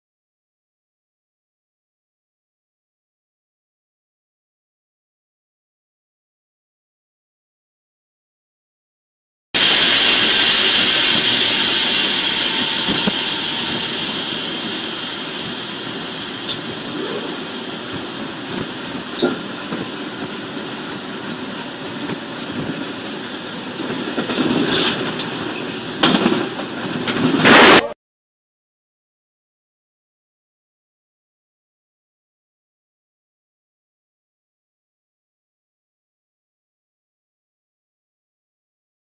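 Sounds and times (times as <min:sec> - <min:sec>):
loud bursts of noise: 0:09.6 - 0:20.2, 0:23.4 - 0:28.0
locomotive engine and rail noise: 0:09.6 - 0:28.0.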